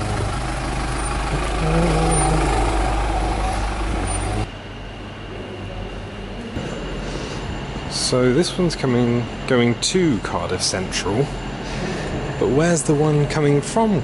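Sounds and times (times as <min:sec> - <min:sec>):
vehicle engines humming: 0:00.0 - 0:04.5.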